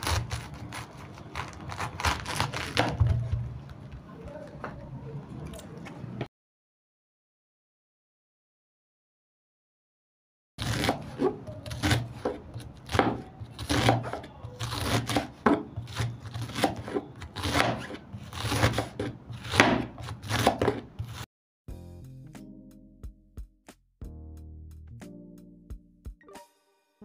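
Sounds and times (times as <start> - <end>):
knife slicing cabbage on board: 0.0 - 3.4, 10.6 - 21.2
music: 20.5 - 27.0.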